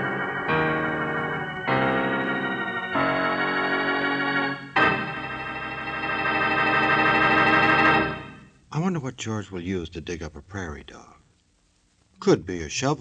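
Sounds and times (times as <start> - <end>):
organ chords: 0.0 - 8.6.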